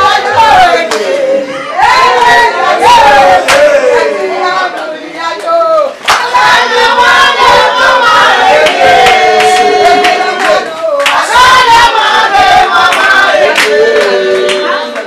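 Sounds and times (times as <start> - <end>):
voices singing together: 0.0 - 15.0
handclaps: 4.8 - 6.4, 8.6 - 11.2, 12.9 - 15.0.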